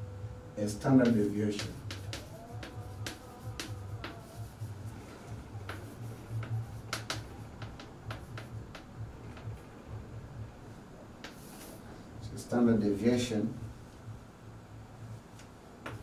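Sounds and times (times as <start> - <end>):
low steady hum: 0.0 - 16.0
chalk writing on blackboard: 0.8 - 9.4, 11.2 - 11.8.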